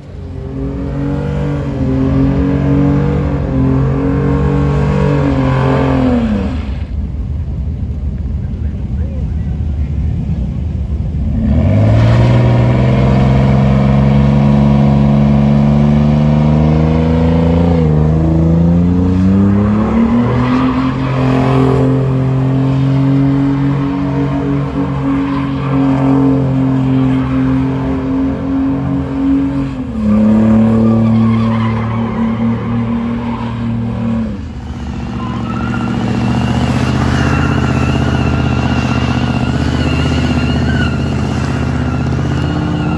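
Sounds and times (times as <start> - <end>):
truck engine revving high: 0.0 - 6.9, 11.2 - 42.9
tyres spinning and squealing: 19.2 - 42.9.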